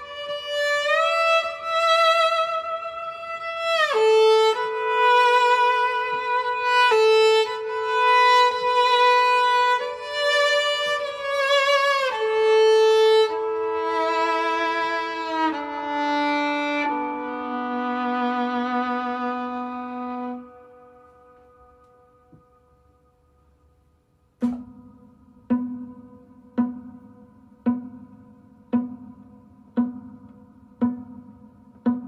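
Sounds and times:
viola playing slow melody: 0:00.0 - 0:22.5.

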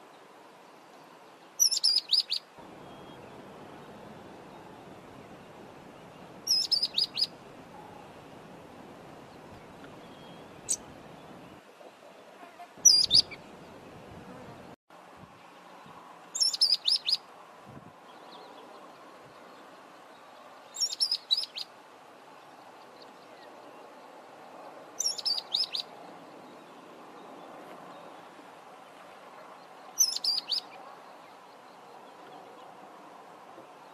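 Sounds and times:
background hiss: 0:00.0 - 0:33.9
bird chirping rapidly: 0:01.6 - 0:03.3, 0:06.5 - 0:07.3, 0:12.8 - 0:13.4, 0:16.4 - 0:17.2, 0:20.8 - 0:21.6, 0:25.0 - 0:25.8, 0:30.0 - 0:30.7.

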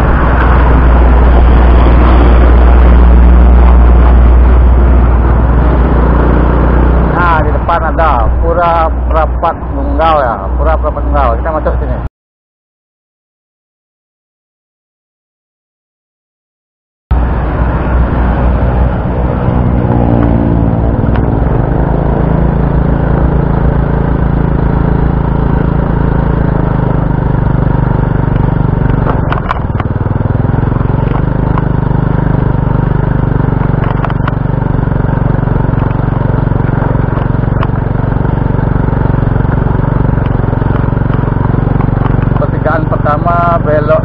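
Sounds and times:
small motorbike engine running: 0:19.8 - 0:44.0.

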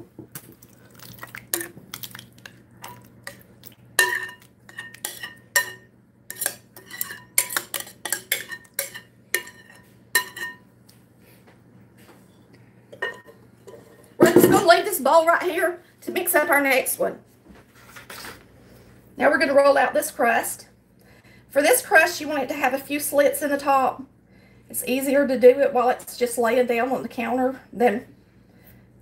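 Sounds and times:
spoon scraping glass bowl: 0:04.0 - 0:10.6.

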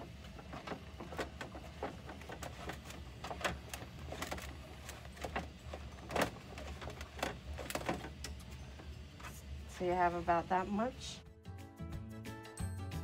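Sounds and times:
plastic clicks and rustles: 0:00.0 - 0:08.5
steady low hum: 0:00.0 - 0:11.3.

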